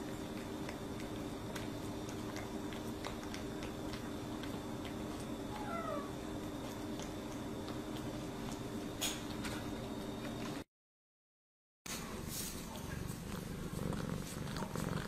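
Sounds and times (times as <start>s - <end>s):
cat chewing clicks: 0.0s - 5.3s
steady low hum: 0.0s - 10.6s
cat meowing: 5.5s - 6.1s.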